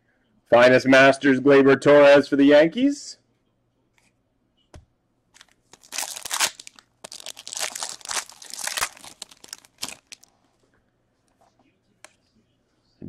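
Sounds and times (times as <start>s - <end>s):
foil wrapper tearing and crinkling: 5.4s - 10.3s.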